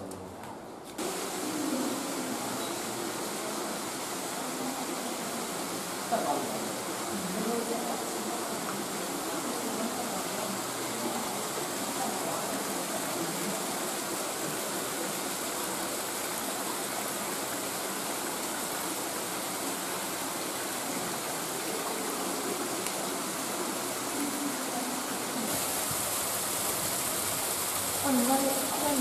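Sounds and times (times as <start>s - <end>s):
stream water rushing: 1.0s - 29.0s.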